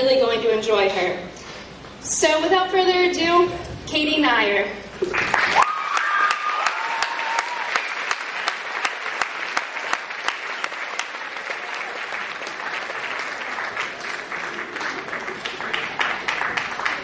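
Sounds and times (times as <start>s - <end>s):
audience applauding: 5.0s - 17.0s
close person clapping: 5.0s - 17.0s.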